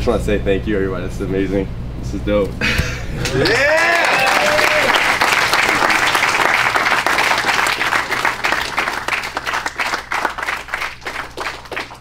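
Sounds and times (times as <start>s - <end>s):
group applauding: 3.2s - 12.0s.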